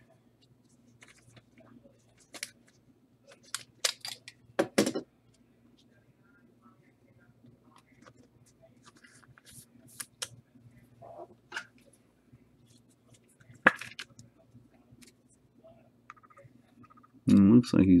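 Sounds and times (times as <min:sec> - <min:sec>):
cards and wrappers rustling: 0:01.0 - 0:04.4.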